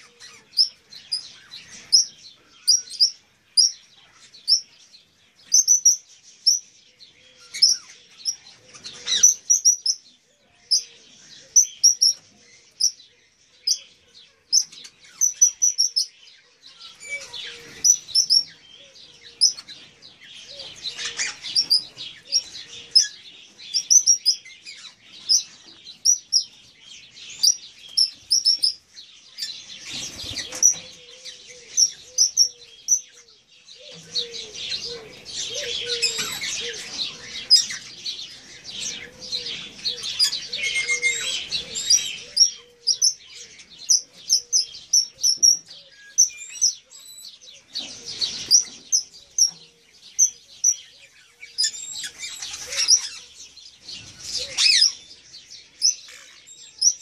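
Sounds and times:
parrots chirping and chattering: 0.0 - 4.8, 5.4 - 6.7, 7.4 - 13.0, 13.6 - 57.0.

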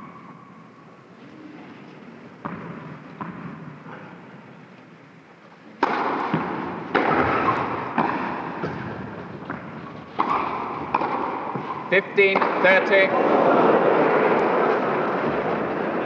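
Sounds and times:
racket striking tennis ball: 2.4 - 4.0, 5.8 - 16.0.

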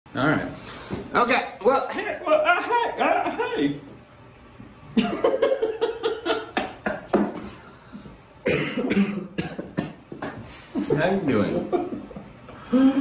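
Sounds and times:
men laughing: 4.9 - 7.6, 10.5 - 13.0.

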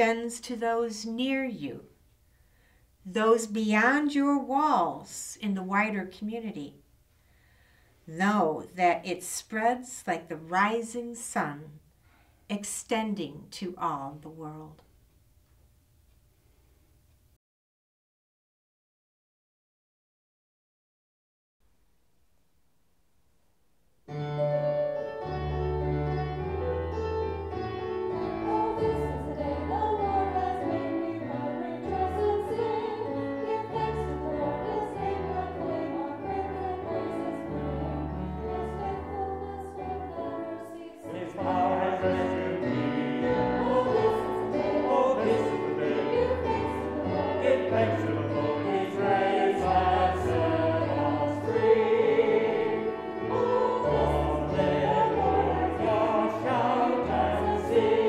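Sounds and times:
keyboard accompaniment: 24.0 - 58.0
choir singing a hymn: 25.3 - 58.0.

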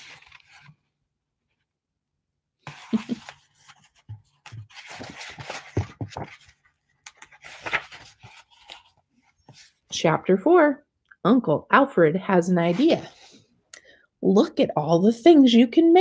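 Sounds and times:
book pages rustling: 0.0 - 0.9, 2.6 - 9.9.

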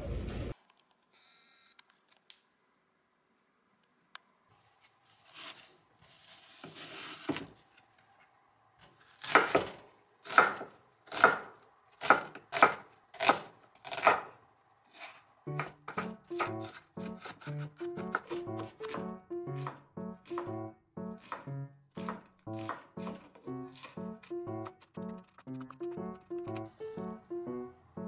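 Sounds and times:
knife chopping onion on board: 15.5 - 20.6, 21.2 - 24.7.

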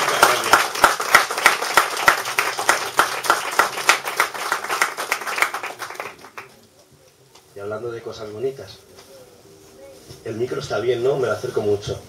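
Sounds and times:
small audience applauding: 0.0 - 6.9
close hands clapping: 0.0 - 7.5.

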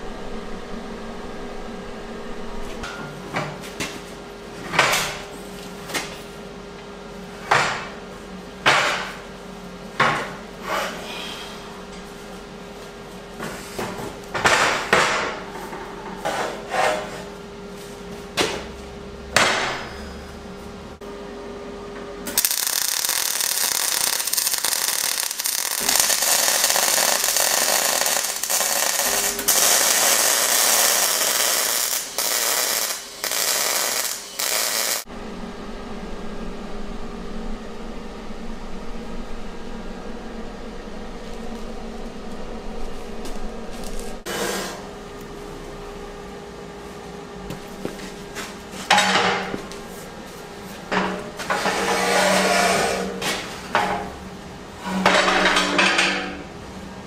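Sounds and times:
shop hum: 0.0 - 57.0
arc welding hiss: 22.3 - 35.1.

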